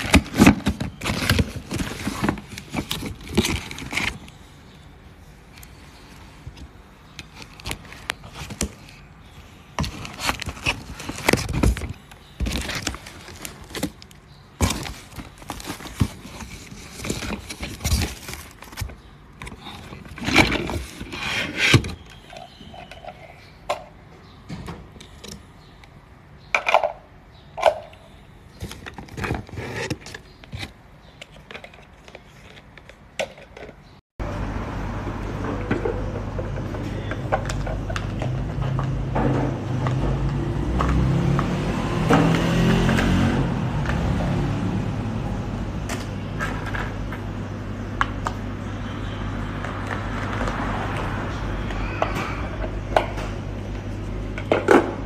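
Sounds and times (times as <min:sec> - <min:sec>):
cardboard box scraping and rustling: 0:00.0 - 0:04.3, 0:14.6 - 0:22.1, 0:28.6 - 0:30.8.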